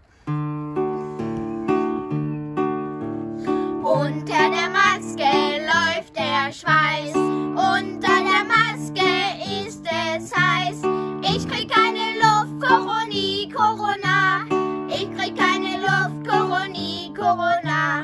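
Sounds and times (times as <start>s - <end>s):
acoustic guitar chords: 0.0s - 18.0s
boys singing: 3.8s - 18.0s.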